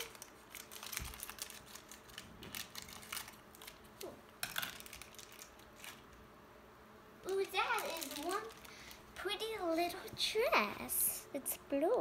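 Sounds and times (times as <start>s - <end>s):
plastic packaging crinkling: 0.0s - 6.2s, 7.2s - 10.1s.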